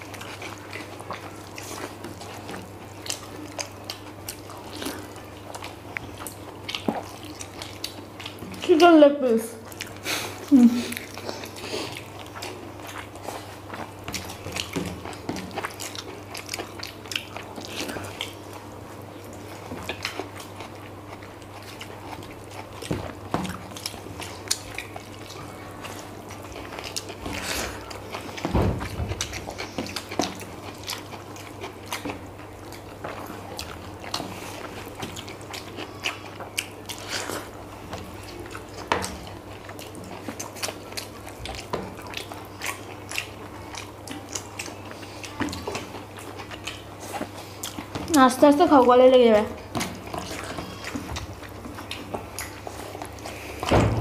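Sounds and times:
wet chewing and smacking: 0.0s - 54.0s
loud low thump: 53.7s - 54.0s.

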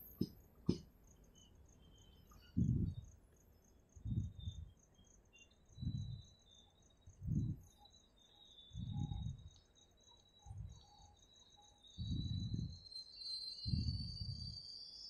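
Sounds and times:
train wheels thudding over rail joints: 0.0s - 0.8s
crickets chirping: 0.0s - 15.0s.

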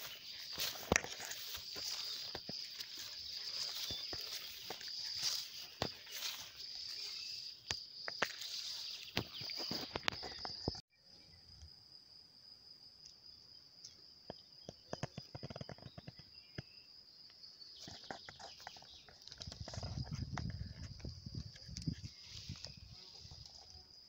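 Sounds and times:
grass rustling and clicking: 0.0s - 10.8s, 14.6s - 16.7s, 17.8s - 24.0s
insects chirring: 0.0s - 24.0s.

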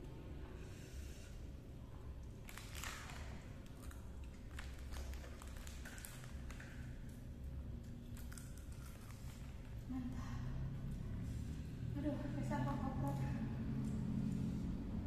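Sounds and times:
low steady hum: 0.0s - 15.0s
chewing: 7.8s - 9.8s.

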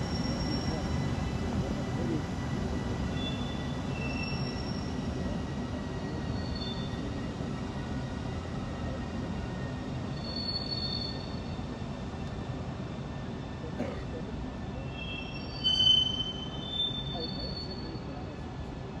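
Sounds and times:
freight train rumbling past: 0.0s - 19.0s
high-pitched wheel squeals: 10.1s - 11.4s, 14.8s - 18.1s.

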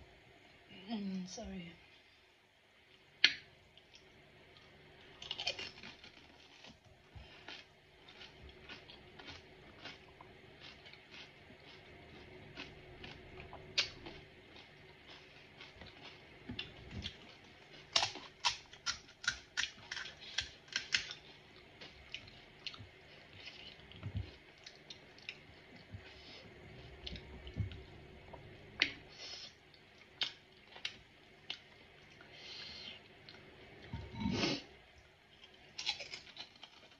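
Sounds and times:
chewing and mouth sounds: 3.2s - 29.0s
crisp shells crunching: 5.2s - 6.8s, 35.7s - 36.9s.

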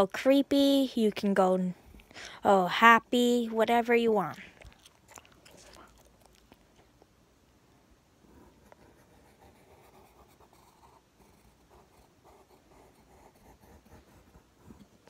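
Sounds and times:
pencil scratching on paper: 8.3s - 15.0s.

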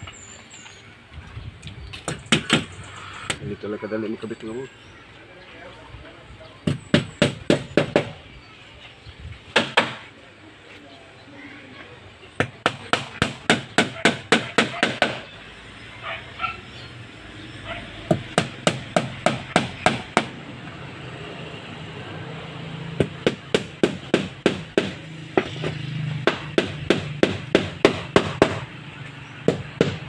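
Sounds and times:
hammer nailing into plywood: 23.0s - 25.5s, 26.3s - 28.6s.

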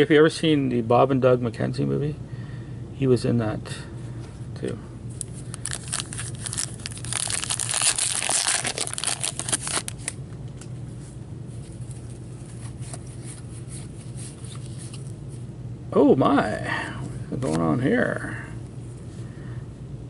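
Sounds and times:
cards rustling: 5.1s - 10.2s
wrapper crinkling and tearing: 5.2s - 10.2s.

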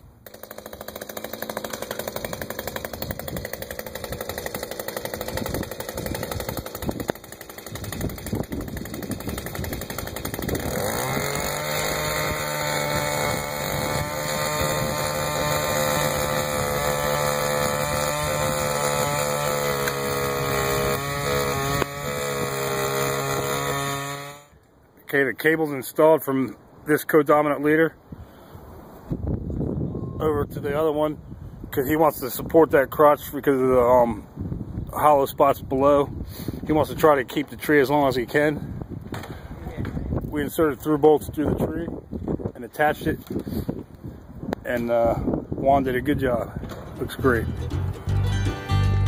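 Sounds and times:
power tool engine revving: 0.2s - 24.5s.

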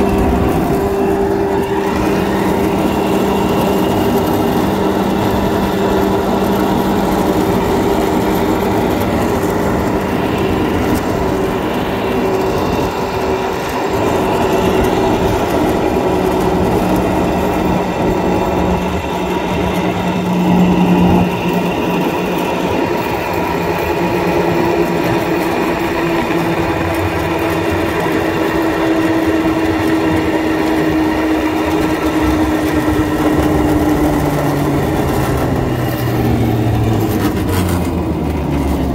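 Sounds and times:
cable car mechanical hum: 0.0s - 38.9s.

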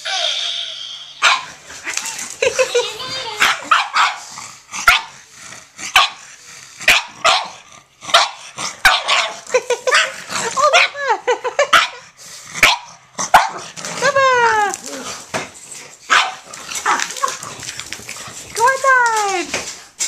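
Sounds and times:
dogs barking sharply: 1.2s - 1.6s, 3.4s - 4.3s, 5.9s - 6.2s, 6.9s - 10.2s, 12.6s - 13.6s, 16.1s - 17.1s.

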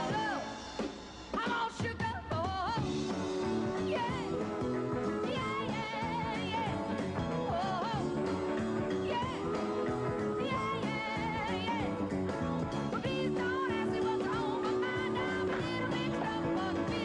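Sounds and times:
woman singing with vibrato: 1.4s - 12.0s, 12.9s - 17.0s
rock band playing: 2.8s - 17.0s.

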